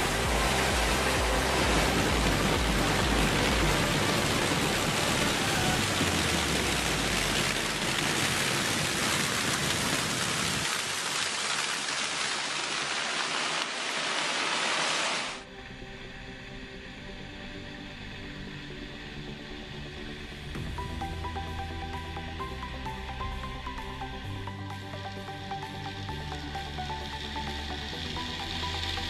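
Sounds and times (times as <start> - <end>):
combine harvester running: 0.0 - 10.2.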